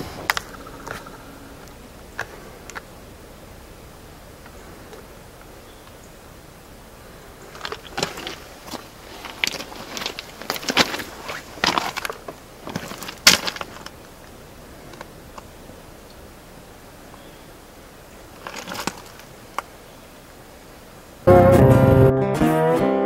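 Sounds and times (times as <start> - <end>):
footsteps on gravel: 7.4 - 14.0.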